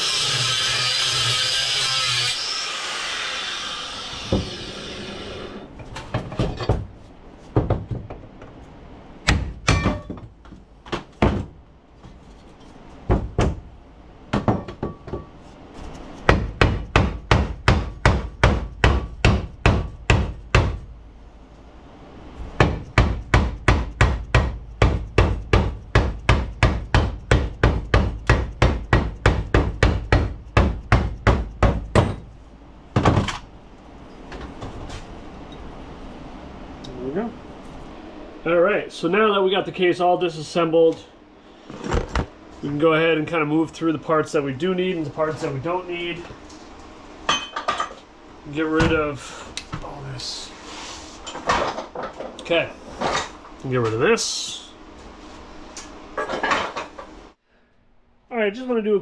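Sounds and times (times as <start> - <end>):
hammer striking chisel on metal: 9.3 - 10.2.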